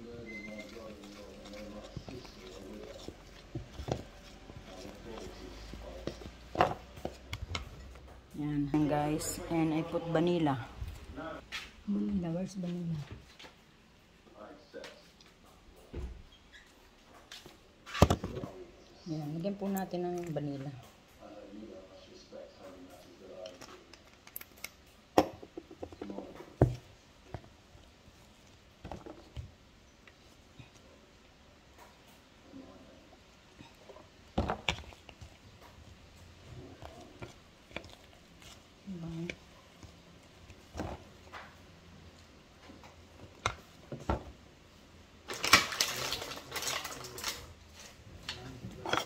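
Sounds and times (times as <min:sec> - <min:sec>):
dishes and utensils clattering: 0:48.7 - 0:49.0.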